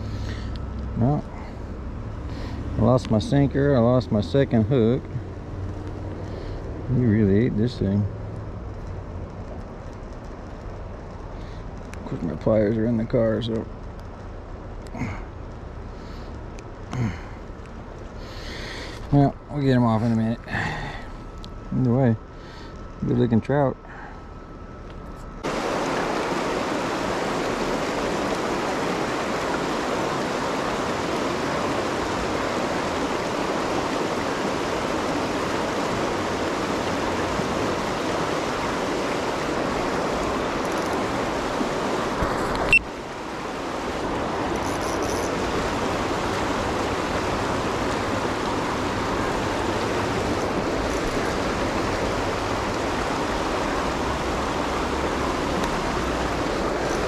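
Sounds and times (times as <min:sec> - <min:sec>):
river rapids over rocks: 0:25.4 - 0:57.0.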